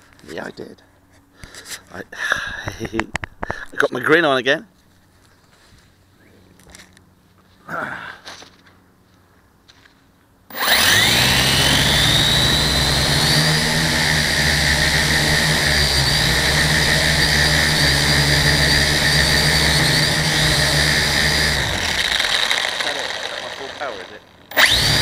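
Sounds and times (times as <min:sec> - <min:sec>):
electric motor whine: 0:10.5 - 0:25.0
low buzz: 0:10.5 - 0:25.0.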